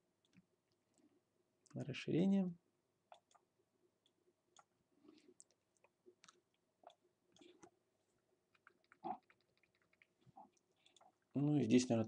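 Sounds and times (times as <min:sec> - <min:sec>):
computer mouse clicks: 0:03.1 - 0:04.7, 0:08.5 - 0:10.1.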